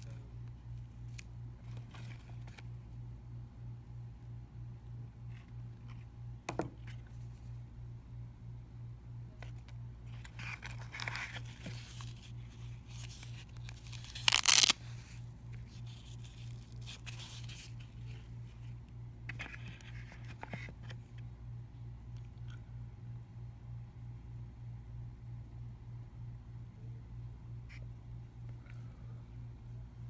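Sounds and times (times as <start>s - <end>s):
velcro ripping apart: 13.6s - 14.8s
nylon rustling: 14.1s - 14.8s.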